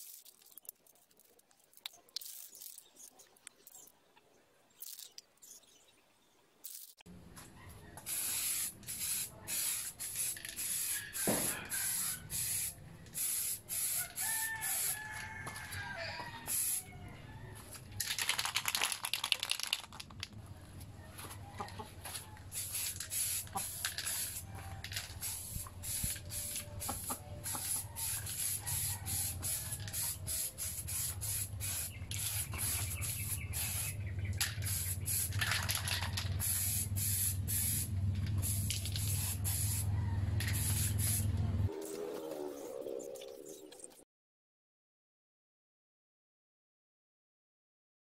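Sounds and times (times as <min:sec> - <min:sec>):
spray paint hissing: 0:01.8 - 0:03.1, 0:08.0 - 0:15.2, 0:16.4 - 0:16.9, 0:22.5 - 0:41.4
chickens clucking: 0:21.0 - 0:22.5, 0:26.7 - 0:29.1.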